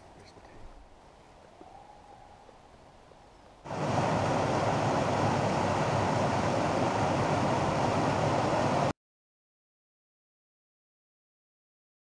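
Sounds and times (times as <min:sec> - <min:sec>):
waterfall rushing over rocks: 0:03.7 - 0:08.9.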